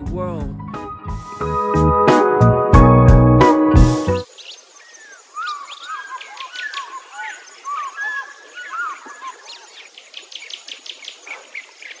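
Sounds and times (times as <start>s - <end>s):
birds chirping: 4.0s - 12.0s.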